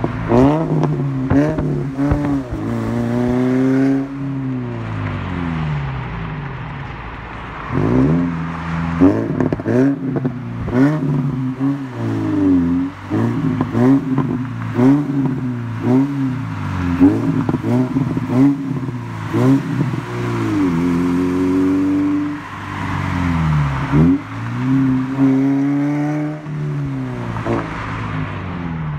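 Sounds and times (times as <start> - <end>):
car engine revving: 0.0 - 28.9.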